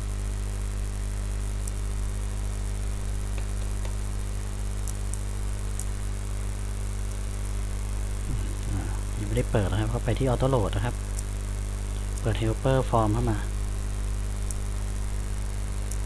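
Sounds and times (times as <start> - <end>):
low electrical hum: 0.0 - 16.0
keyboard and mouse clicks: 3.3 - 4.0.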